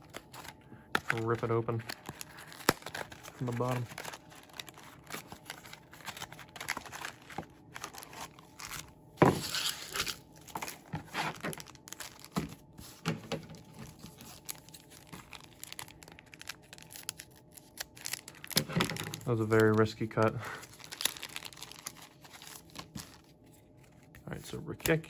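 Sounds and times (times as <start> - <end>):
foil packs crinkling: 0.0 - 24.1
foil pack cut open: 1.2 - 12.3.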